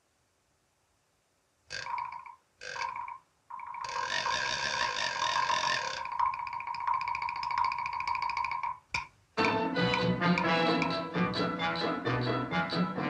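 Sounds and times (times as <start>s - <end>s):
electric robot arm buzz: 1.7s - 8.6s.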